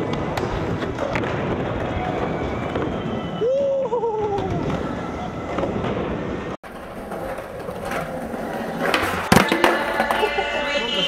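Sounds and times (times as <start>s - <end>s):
skateboard wheels rolling on concrete: 0.0s - 11.0s
skateboard clack: 6.7s - 11.0s.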